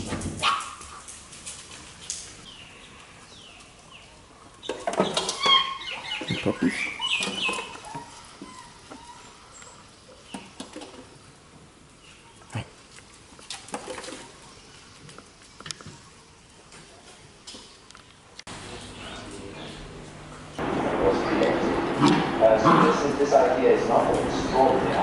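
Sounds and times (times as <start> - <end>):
puppies squeaking and whining: 5.0 - 9.8.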